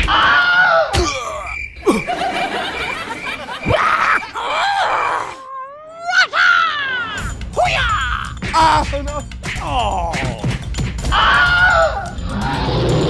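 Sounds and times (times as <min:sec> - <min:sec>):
vocal groans and grunts: 0:01.0 - 0:02.1, 0:03.7 - 0:06.0, 0:09.6 - 0:10.6
snickering laughter: 0:01.8 - 0:04.6.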